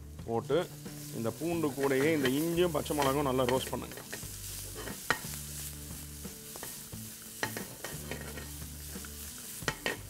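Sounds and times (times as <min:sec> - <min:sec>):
food sizzling in oil: 0:00.0 - 0:10.0
wooden spatula scraping pan: 0:01.6 - 0:05.8, 0:07.5 - 0:10.0.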